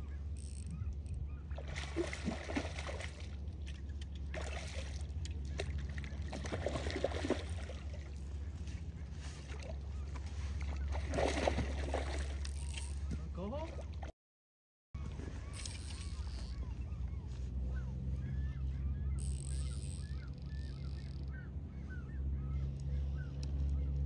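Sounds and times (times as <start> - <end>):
fish splashing at water surface: 1.6 - 3.4, 4.3 - 8.0, 10.8 - 12.5.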